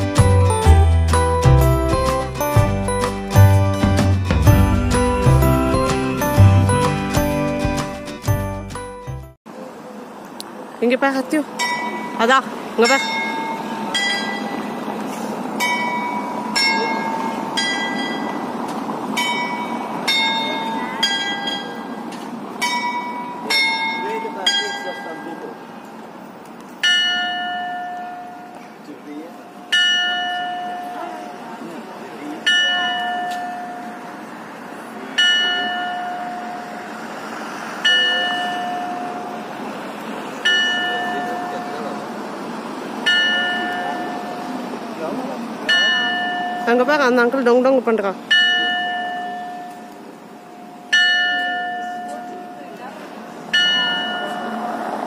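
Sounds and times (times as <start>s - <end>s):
clock tower bells striking: 0.0s - 9.0s, 11.6s - 14.8s, 15.6s - 18.6s, 19.2s - 25.6s, 26.8s - 31.6s, 32.4s - 34.3s, 35.1s - 36.9s, 37.8s - 39.6s, 40.4s - 42.3s, 43.0s - 44.8s, 45.6s - 52.9s, 53.5s - 54.8s
steady background noise: 9.5s - 55.0s
bell struck by hammer: 12.8s - 14.6s, 32.5s - 34.0s, 37.9s - 39.3s, 40.5s - 41.8s, 45.7s - 46.8s, 48.3s - 49.9s.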